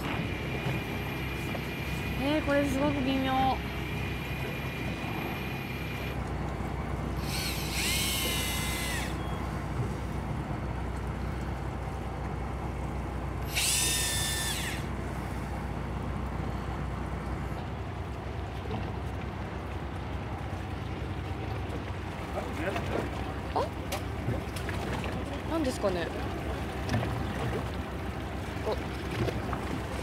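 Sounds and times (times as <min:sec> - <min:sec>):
boat engine hum: 0:00.0 - 0:30.0
electric fishing reel motor whining: 0:04.0 - 0:06.2, 0:07.2 - 0:09.4, 0:13.4 - 0:14.9.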